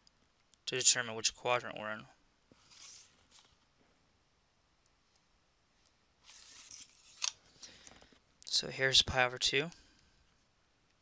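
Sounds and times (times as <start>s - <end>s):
faint soft hissy noises: 0.0s - 11.0s.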